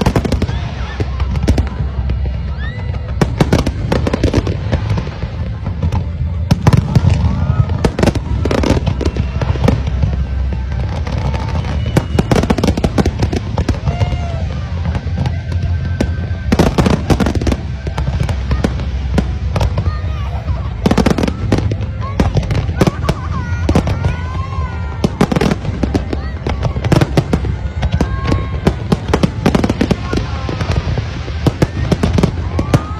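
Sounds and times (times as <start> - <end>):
deep low rumble: 0.0 - 32.9
firework bangs and crackling: 0.0 - 32.9.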